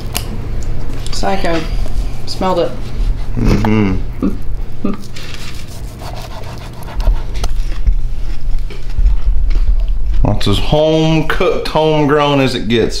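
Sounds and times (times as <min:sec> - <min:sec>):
knife sawing through meat: 0:05.6 - 0:07.6.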